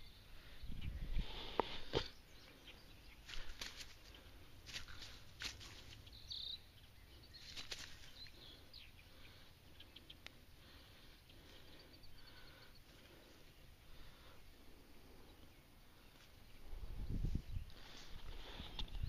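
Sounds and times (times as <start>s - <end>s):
faint rustling in grass: 3.1s - 6.3s, 7.2s - 11.8s.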